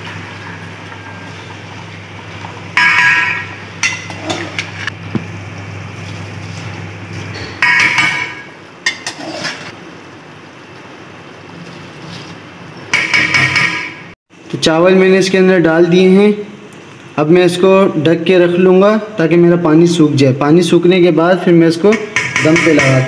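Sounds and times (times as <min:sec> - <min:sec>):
metal ladle clinking on pot: 0:07.4 - 0:09.6.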